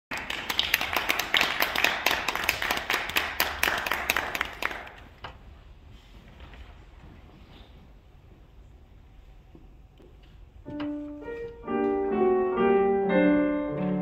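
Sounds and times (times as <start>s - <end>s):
small audience applauding: 0.1s - 5.2s.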